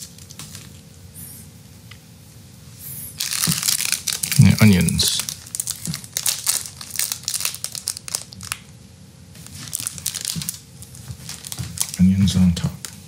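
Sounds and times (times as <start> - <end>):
plastic packaging crinkling: 0.0 - 0.9, 3.2 - 8.8, 9.4 - 13.0.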